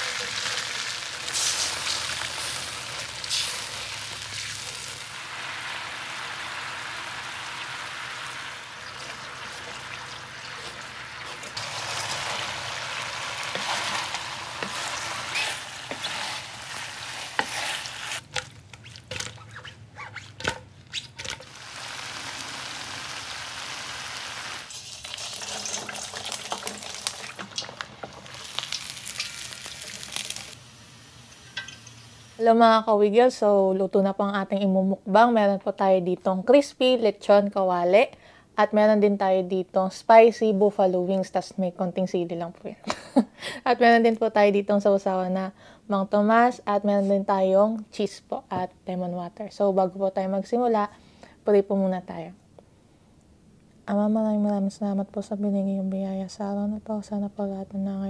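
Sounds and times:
hot oil sizzling: 0.0 - 19.0, 21.3 - 32.5
spatula scraping metal pan: 13.5 - 18.2.

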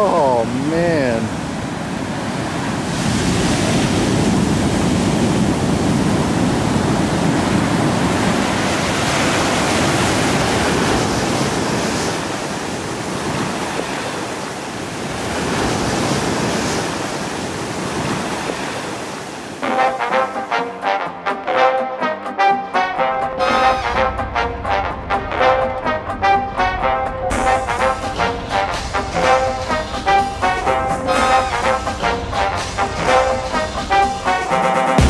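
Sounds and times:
ocean surf washing: 0.0 - 35.0
brass music: 19.6 - 35.0.

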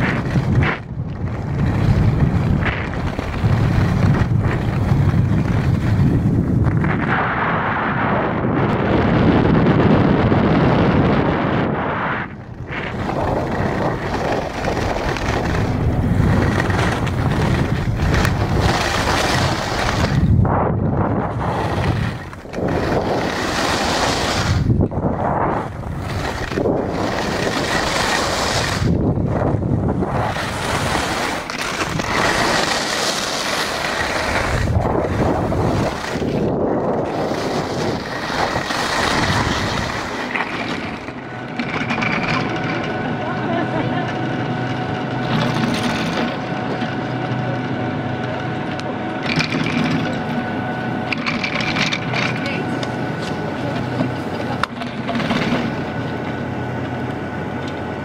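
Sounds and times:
skis scraping on snow: 0.0 - 8.2, 11.2 - 44.1
wind buffeting microphone: 0.0 - 58.0.

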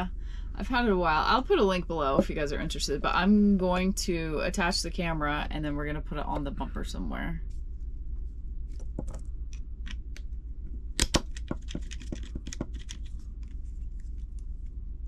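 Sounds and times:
low hum: 0.0 - 15.0
sharp plastic snaps: 11.0 - 13.0
plastic clicks and rattles: 11.0 - 13.1.

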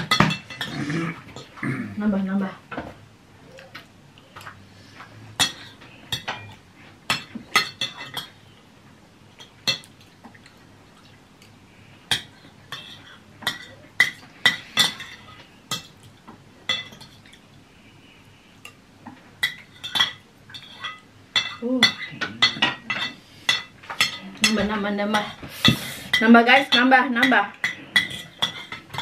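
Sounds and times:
cutlery clinking on ceramic bowl: 0.0 - 0.8, 5.4 - 8.4, 12.1 - 16.1, 19.4 - 29.0.

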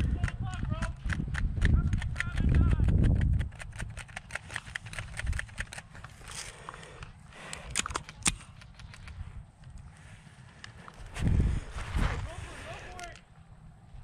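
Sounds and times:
twigs snapping: 0.1 - 9.9
footsteps crunching through dry grass: 10.0 - 12.8.

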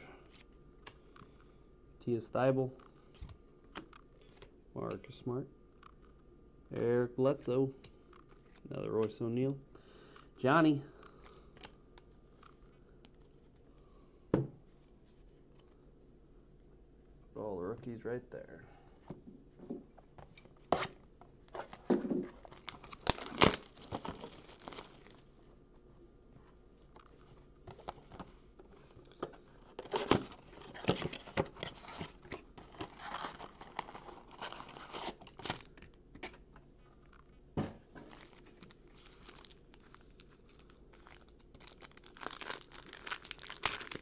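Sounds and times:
foil pack crinkling: 21.6 - 25.2, 29.7 - 35.9, 38.0 - 44.0
plastic wrap tearing: 21.6 - 25.2, 38.1 - 44.0.

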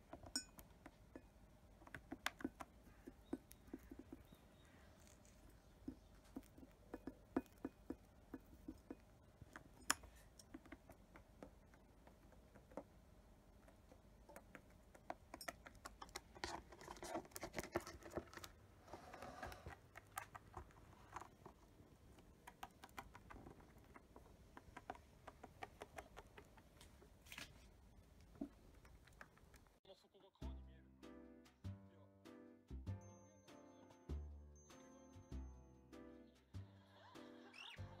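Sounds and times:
bird pecking seed in dish: 0.0 - 29.8
scratching and rustling: 0.0 - 29.8.

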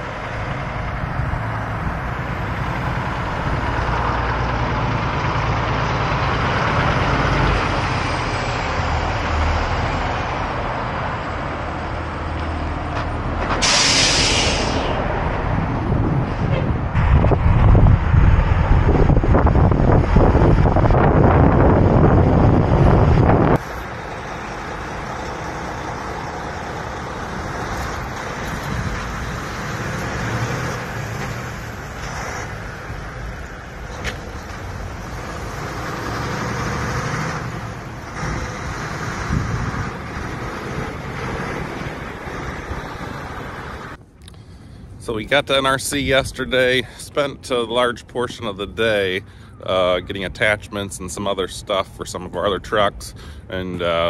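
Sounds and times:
truck diesel engine running: 0.0 - 44.8
air brake hiss: 13.6 - 15.0.

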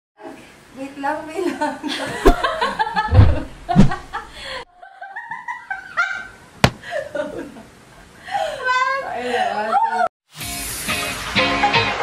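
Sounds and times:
women laughing and giggling: 1.4 - 6.3
low thumps: 2.2 - 4.4.

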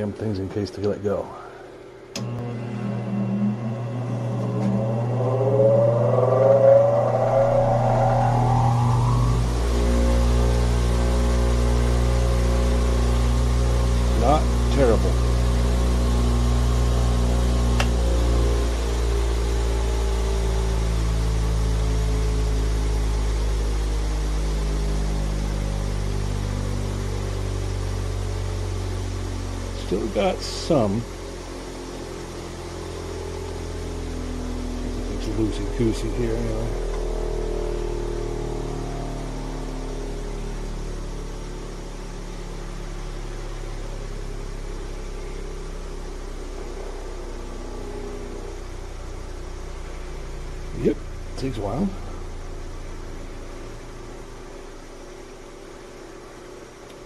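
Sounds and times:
bench grinder humming: 2.2 - 18.0.

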